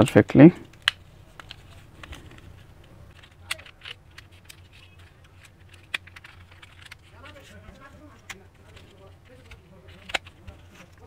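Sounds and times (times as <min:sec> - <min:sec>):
faint low hum: 0:00.0 - 0:11.0
small plastic clicks: 0:03.1 - 0:10.6.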